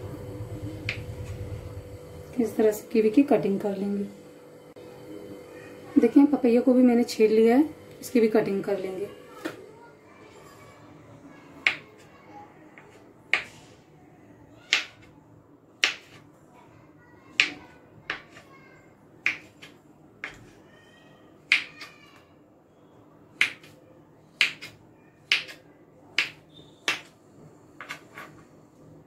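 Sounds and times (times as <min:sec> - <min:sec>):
knife chopping on wooden board: 0:15.8 - 0:16.2, 0:23.4 - 0:23.8, 0:24.4 - 0:27.1.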